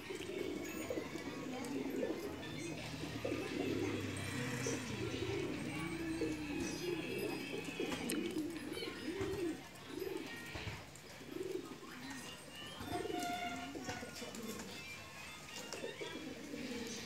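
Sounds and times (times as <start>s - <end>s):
pigeons cooing: 0.0s - 17.0s.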